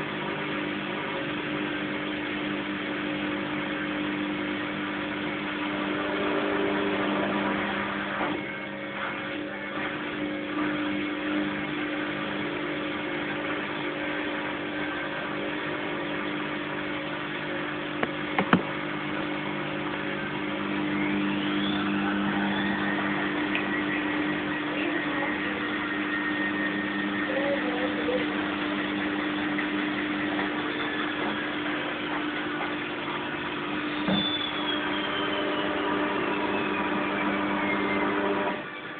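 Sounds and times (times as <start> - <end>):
washing machine motor humming: 0.0 - 38.9
rising whine: 18.0 - 32.6.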